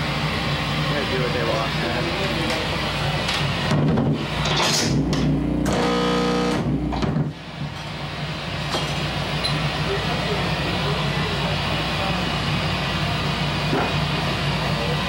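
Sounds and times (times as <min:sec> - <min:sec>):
amp hum: 0:01.0 - 0:15.0
buzzing tone: 0:04.4 - 0:07.3
distorted electronic noise: 0:05.0 - 0:07.3.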